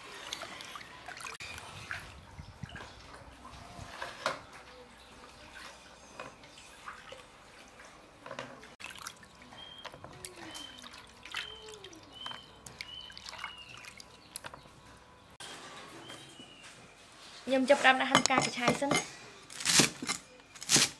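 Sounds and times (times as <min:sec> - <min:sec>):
water splashing in a steel basin: 0:00.0 - 0:14.6.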